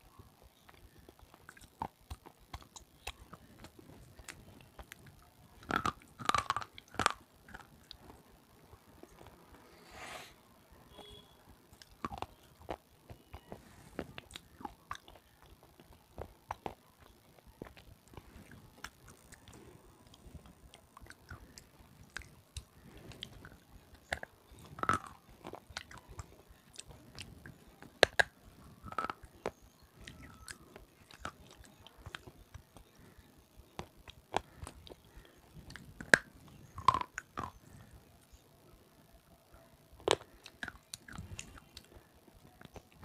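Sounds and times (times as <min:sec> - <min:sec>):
quiet chewing: 0:00.1 - 0:09.8, 0:11.0 - 0:43.0
pencil crunching and cracking: 0:11.7 - 0:38.4.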